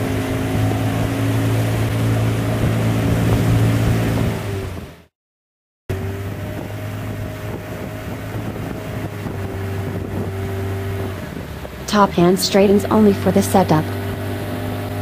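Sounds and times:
wind noise on microphone: 0.0 - 5.0, 6.0 - 11.9
motorboat engine running: 0.0 - 5.1, 5.9 - 15.0.

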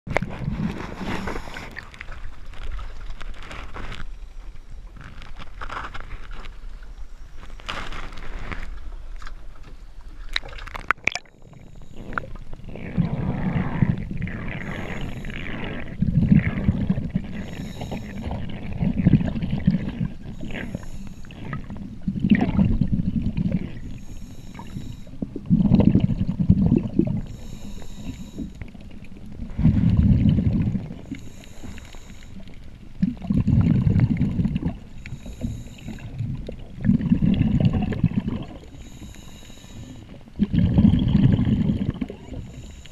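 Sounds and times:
underwater exhaust bubbling: 10.3 - 42.9
regulator inhaling hiss: 14.6 - 15.4, 17.3 - 18.4, 20.3 - 21.5, 23.9 - 25.2, 27.2 - 28.7, 31.0 - 32.5, 35.0 - 36.2, 38.7 - 40.2, 42.3 - 42.9.

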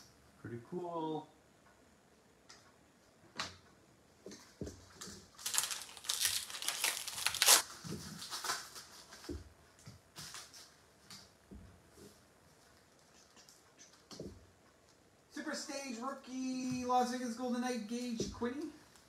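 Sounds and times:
foil wrapper crinkling and tearing: 5.4 - 8.9.

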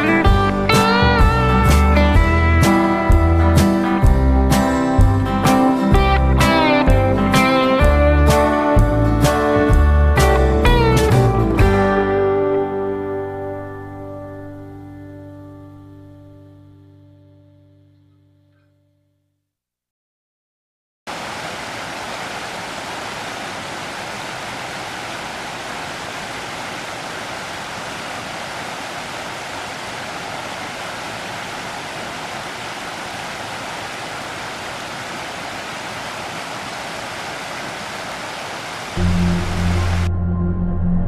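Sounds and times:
music: 0.0 - 19.4, 39.0 - 41.0
river rushing over rocks: 21.1 - 39.0.

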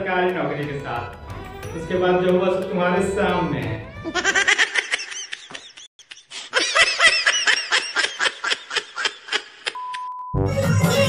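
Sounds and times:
high-pitched giggling laughter: 4.0 - 9.8.

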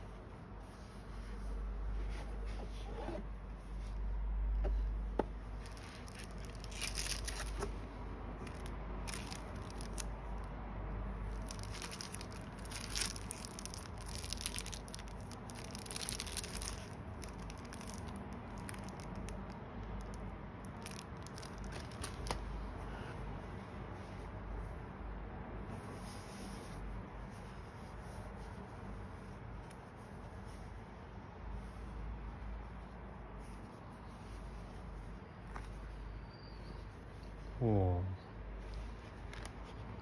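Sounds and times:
cellophane crinkling: 5.5 - 10.5, 11.2 - 22.5.

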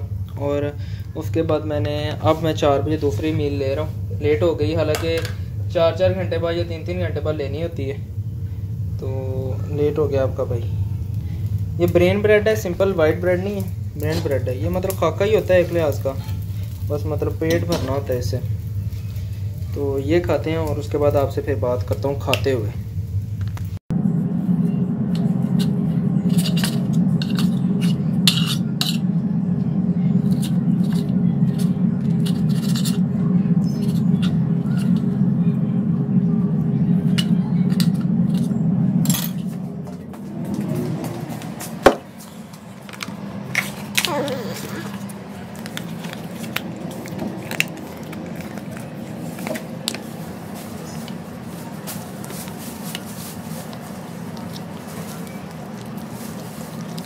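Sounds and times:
steady low hum: 0.0 - 57.0
plastic packet crinkling: 44.1 - 57.0
small clicks and squishes: 44.9 - 51.2, 51.9 - 57.0.

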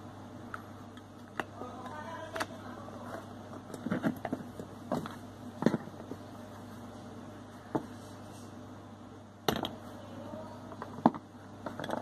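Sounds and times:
plastic parts clicking and knocking: 9.5 - 9.8, 10.7 - 12.0.

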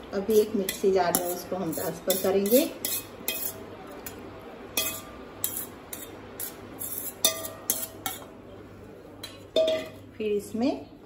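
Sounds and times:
metal spoon scraping steel bowl: 0.3 - 3.6, 4.8 - 8.3.

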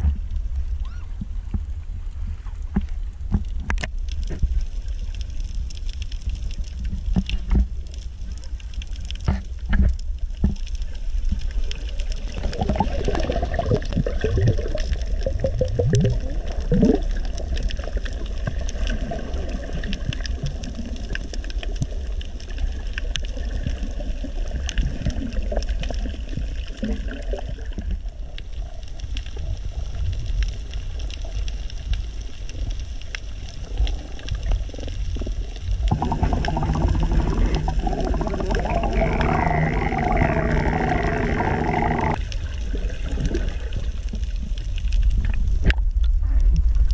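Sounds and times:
faint underwater clicks: 0.0 - 46.9
low underwater rumble: 0.0 - 46.9
bubbling gurgles: 10.2 - 28.3, 33.5 - 46.1.

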